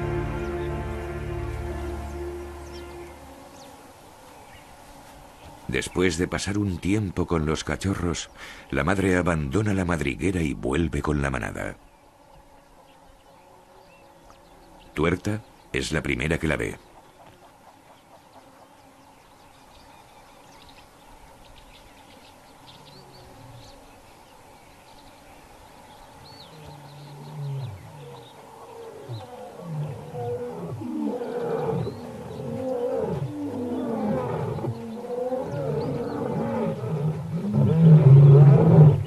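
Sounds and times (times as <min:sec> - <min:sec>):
lions roaring: 0:26.6 - 0:39.0.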